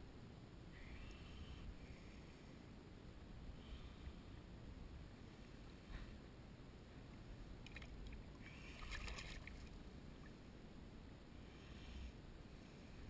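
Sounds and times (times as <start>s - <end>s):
faint water splashing: 7.0s - 10.5s
soft swish of water: 7.0s - 10.5s.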